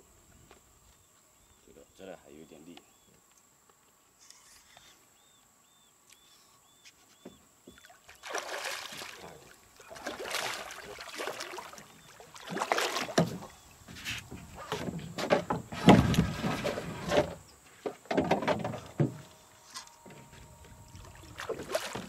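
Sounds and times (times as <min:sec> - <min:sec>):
fish thrashing and splashing water: 0:08.1 - 0:13.6, 0:20.9 - 0:22.0.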